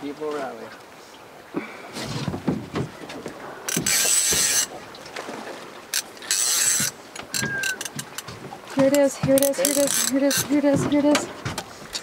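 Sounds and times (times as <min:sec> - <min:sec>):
quiet knocks: 0:02.0 - 0:04.5
fishing reel mechanical bursts: 0:03.7 - 0:04.7, 0:06.0 - 0:08.2, 0:09.4 - 0:10.4.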